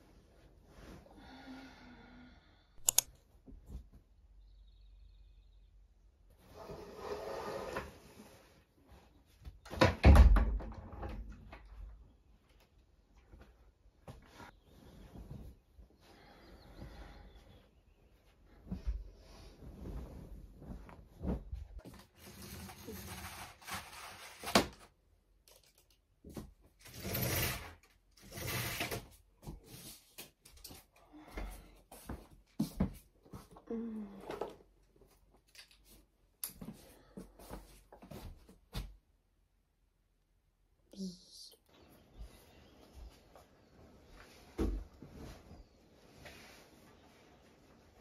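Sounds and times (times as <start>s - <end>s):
bedclothes rustling: 13.1s - 22.7s, 42.1s - 48.0s
roller blind whirring and rattling: 26.8s - 29.1s.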